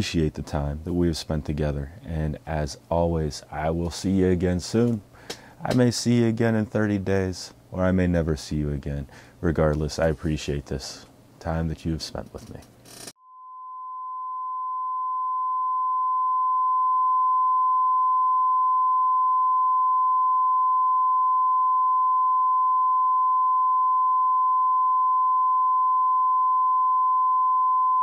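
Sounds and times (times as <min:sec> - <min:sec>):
electronic sine test tone: 0:12.9 - 0:28.0.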